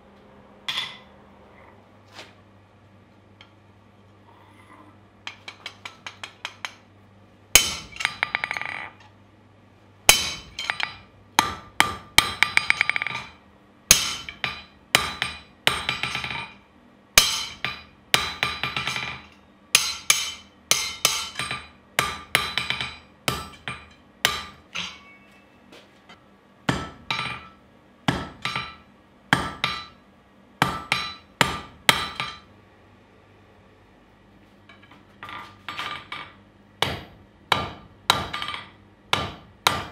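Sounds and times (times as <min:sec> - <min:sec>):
hammer striking steel on anvil: 0:07.6 - 0:08.9, 0:10.1 - 0:16.6, 0:17.2 - 0:25.3, 0:26.7 - 0:30.0, 0:30.6 - 0:32.5, 0:35.7 - 0:39.9.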